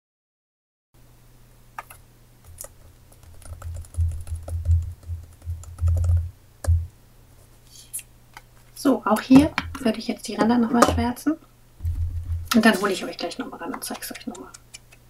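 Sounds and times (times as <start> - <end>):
fingers pressing paper clicking: 1.8 - 6.3.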